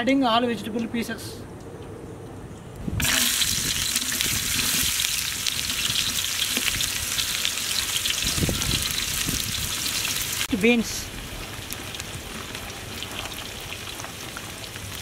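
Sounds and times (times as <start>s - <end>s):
vegetables sizzling in hot oil: 3.0s - 15.0s.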